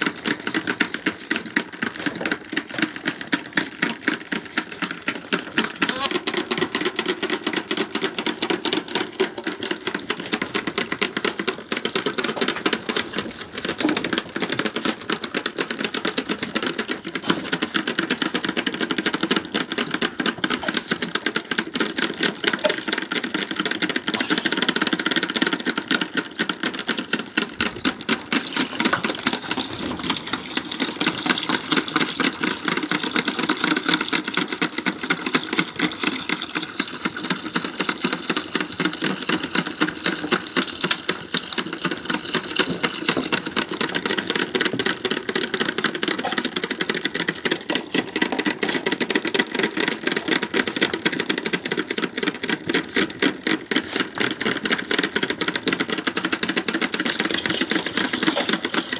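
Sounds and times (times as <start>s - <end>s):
lambs sucking milk: 0.0s - 58.9s.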